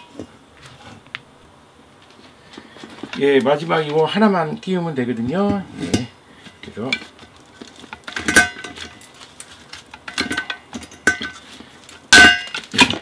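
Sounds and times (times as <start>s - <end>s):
metal ladle ringing: 8.1s - 9.0s, 12.1s - 13.0s.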